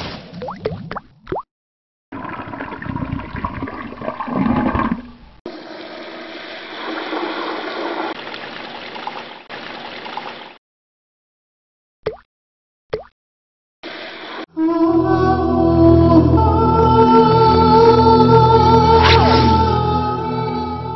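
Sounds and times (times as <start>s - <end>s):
rushing swirling water: 2.2s - 10.5s.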